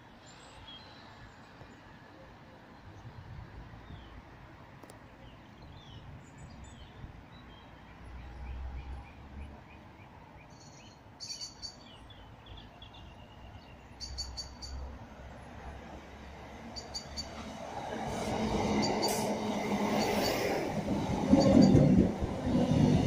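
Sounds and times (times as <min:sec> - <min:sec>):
small birds chirping: 0:05.2 - 0:14.9.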